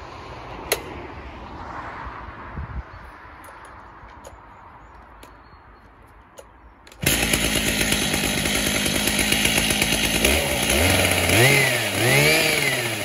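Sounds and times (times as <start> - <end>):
chainsaw running: 6.9 - 13.0.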